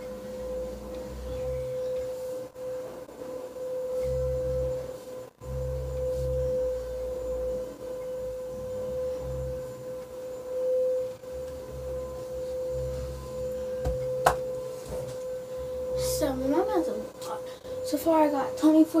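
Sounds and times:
steady single-pitch whine: 0:00.0 - 0:19.0
low rumble: 0:04.0 - 0:17.1.

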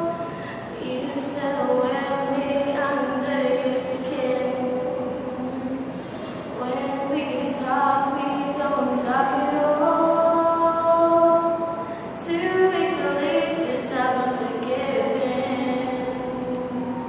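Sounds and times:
woman singing a cappella: 0:00.0 - 0:05.9, 0:06.6 - 0:17.0.

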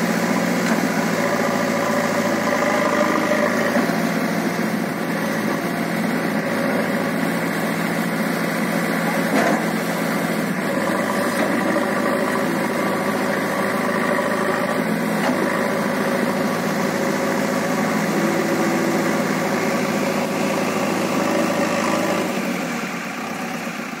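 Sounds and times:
backhoe diesel engine running: 0:00.0 - 0:24.0.

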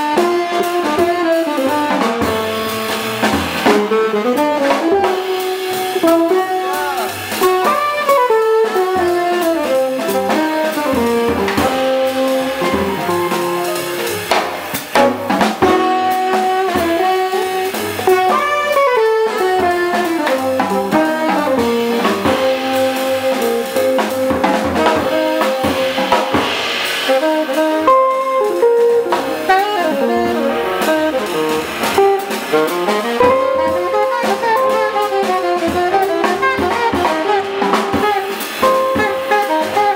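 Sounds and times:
double bass: 0:00.0 - 0:39.9
drum kit: 0:00.0 - 0:39.9
piano: 0:00.0 - 0:39.9
saxophone melody: 0:00.0 - 0:39.9
guitar: 0:27.8 - 0:39.9.

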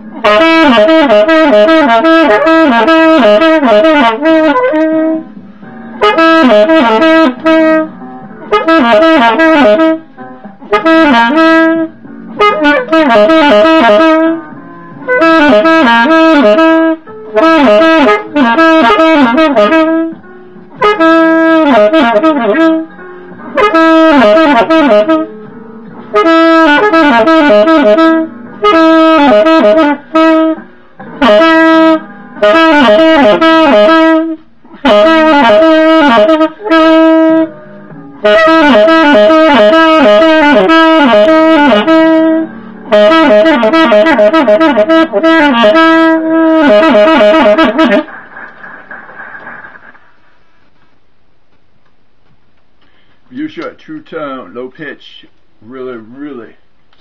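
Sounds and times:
alto saxophone playing slow jazz: 0:00.0 - 0:48.1.

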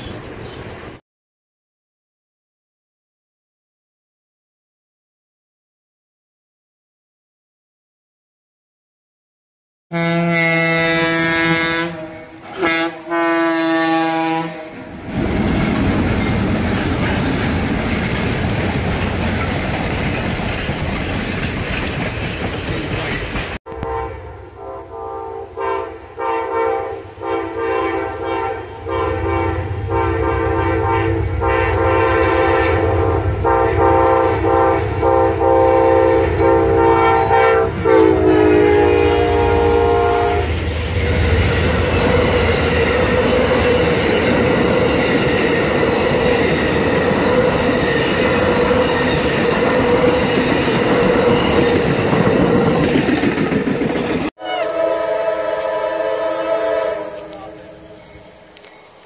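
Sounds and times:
locomotive horn blasts: 0:09.9 - 0:15.0, 0:23.7 - 0:40.6, 0:54.4 - 0:57.9
train wheels clattering on rails: 0:15.0 - 0:23.6, 0:40.4 - 0:54.3.

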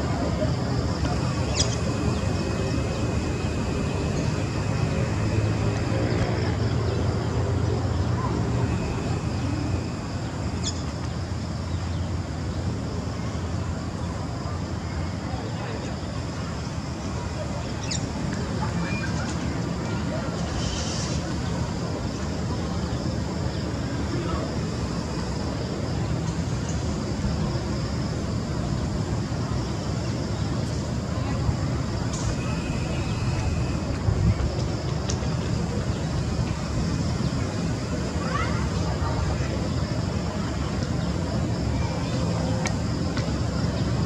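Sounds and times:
distant traffic: 0:00.0 - 0:44.0
wind: 0:00.0 - 0:44.0
faint hiss: 0:19.0 - 0:42.1.

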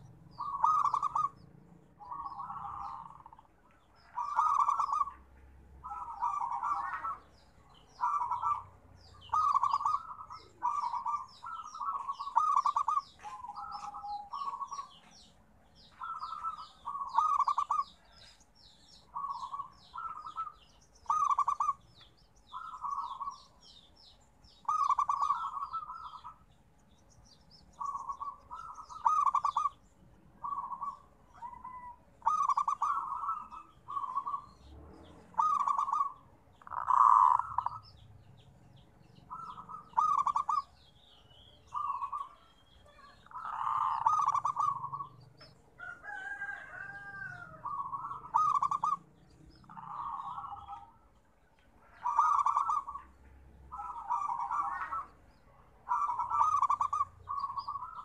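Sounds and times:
dove cooing: 0:00.0 - 0:15.2, 0:15.8 - 0:18.4, 0:19.0 - 0:23.6, 0:24.6 - 0:26.4, 0:27.7 - 0:29.8, 0:30.4 - 0:38.4, 0:39.3 - 0:41.1, 0:41.7 - 0:51.1, 0:51.8 - 0:58.0.

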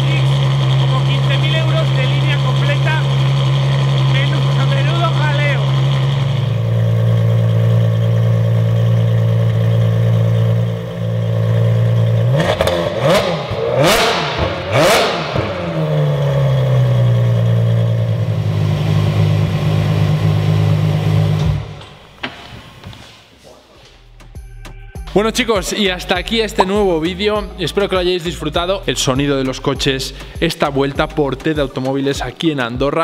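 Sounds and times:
sports car engine idling and revving: 0:00.0 - 0:22.1, 0:24.0 - 0:31.7.

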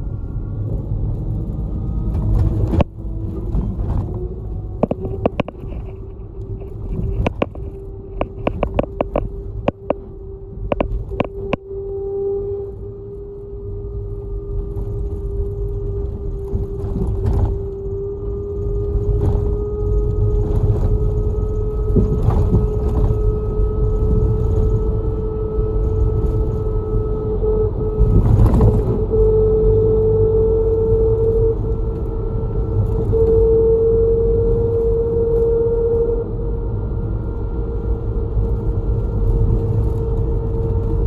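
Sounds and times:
bus road and engine rumble: 0:00.0 - 0:41.0
drivetrain whine: 0:00.0 - 0:41.0
bumps and rattles: 0:02.1 - 0:10.1.

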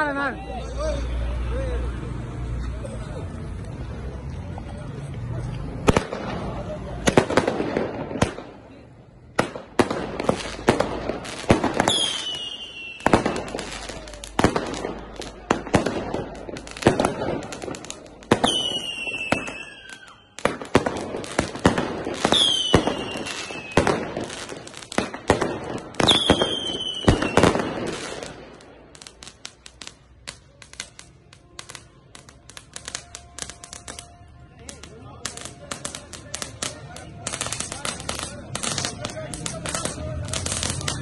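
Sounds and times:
firecrackers banging and crackling: 0:05.3 - 0:41.0
whistling fireworks: 0:09.4 - 0:41.0.

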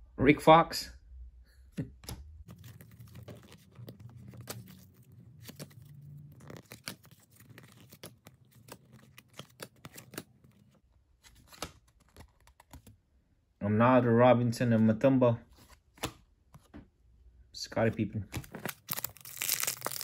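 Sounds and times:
trading cards flipped by hand: 0:02.0 - 0:12.9, 0:15.6 - 0:16.7, 0:18.3 - 0:20.0.

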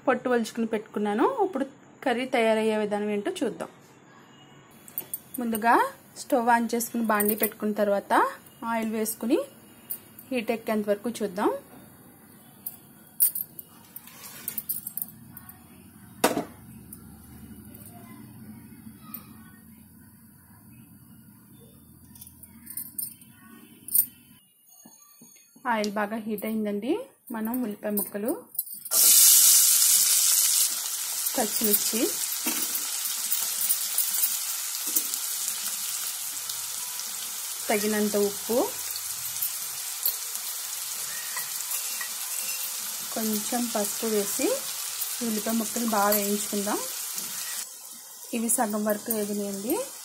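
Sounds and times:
onions sizzling in hot oil: 0:28.9 - 0:50.0.

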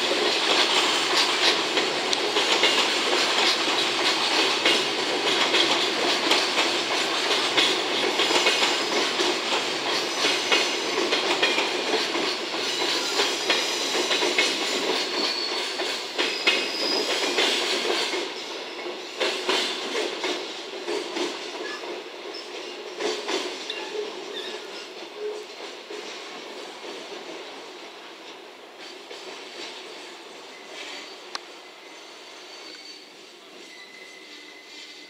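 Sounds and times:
wheels clicking over rail joints: 0:00.0 - 0:27.5
train wheels rumbling on rails: 0:00.0 - 0:35.0.

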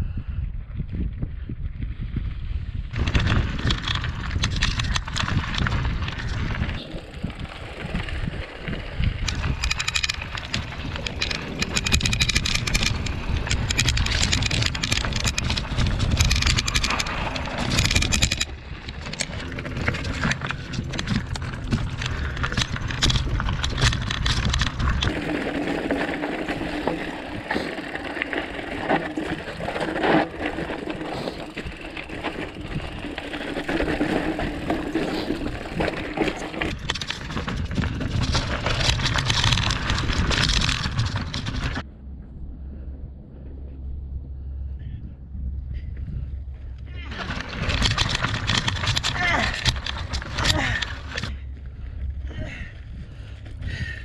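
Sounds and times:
wind rumble on microphone: 0:00.0 - 0:54.0
bike tyres crunching over stones: 0:02.2 - 0:41.9, 0:46.6 - 0:54.0.

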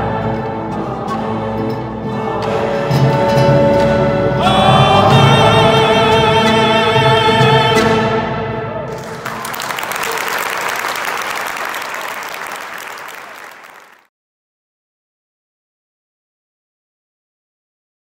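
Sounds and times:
choir and orchestra chord: 0:00.0 - 0:09.2
audience applauding: 0:08.9 - 0:14.1.

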